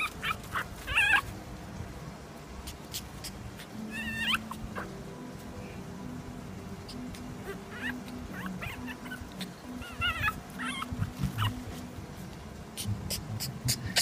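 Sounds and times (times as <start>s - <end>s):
puppy whimpering and yipping: 0.0s - 1.4s, 2.7s - 5.0s, 6.8s - 12.0s.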